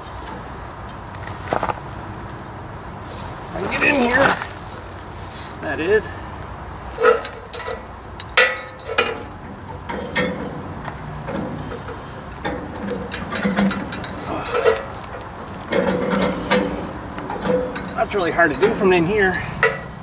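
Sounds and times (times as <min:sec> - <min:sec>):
low grunts: 0:14.2 - 0:15.0.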